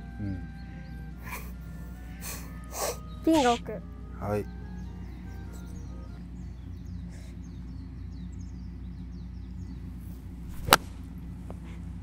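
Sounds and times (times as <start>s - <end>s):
golf club striking ball: 10.5s - 11.1s.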